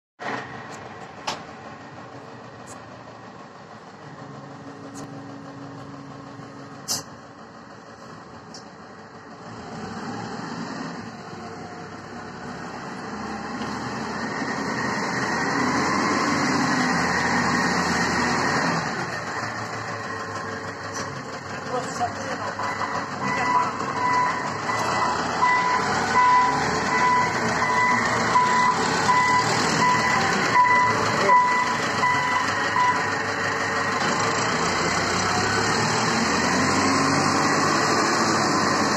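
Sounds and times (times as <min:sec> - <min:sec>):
truck diesel engine running: 0:00.2 - 0:38.9
sharp click: 0:06.8 - 0:07.1.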